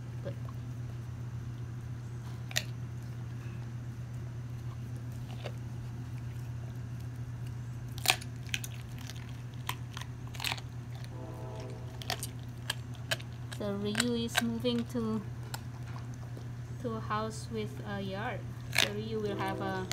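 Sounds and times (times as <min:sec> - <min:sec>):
dog chewing: 0:00.2 - 0:11.2, 0:12.0 - 0:17.0, 0:17.6 - 0:19.9
bone crunching: 0:04.8 - 0:11.1, 0:18.5 - 0:19.0
low hum: 0:09.2 - 0:19.9.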